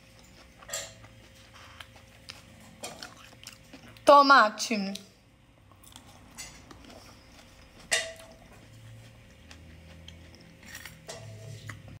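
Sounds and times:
faint eating sounds: 0.0 - 12.0
fork clinking on plate: 7.9 - 8.4.

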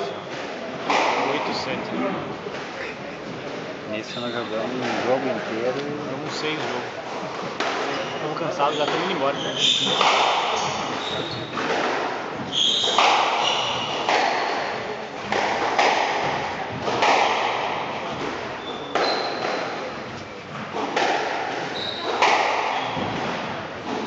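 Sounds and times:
racket striking squash ball: 0.0 - 1.5, 6.6 - 24.0
shoes squeaking on wooden floor: 2.7 - 11.7, 12.4 - 14.7, 18.0 - 20.6, 21.6 - 23.3.

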